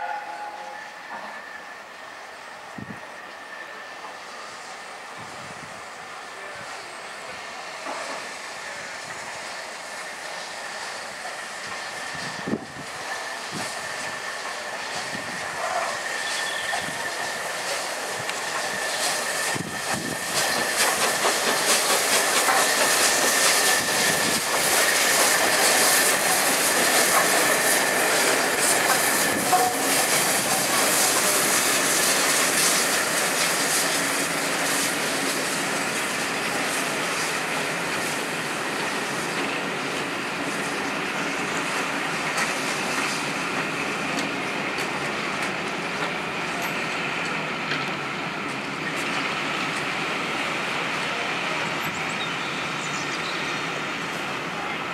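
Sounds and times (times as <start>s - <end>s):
steady high squeal: 0.0s - 42.1s
train wheels clacking over rail joints: 11.1s - 50.0s.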